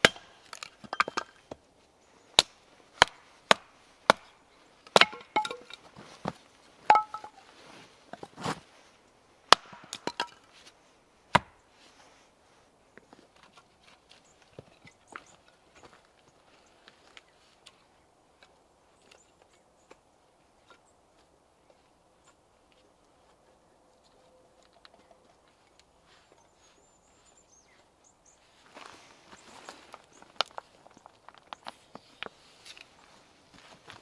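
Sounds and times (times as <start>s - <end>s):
hatchet chopping kindling: 0.0s - 1.3s, 2.4s - 5.8s, 6.9s - 7.4s, 9.5s - 10.4s, 11.3s - 11.6s.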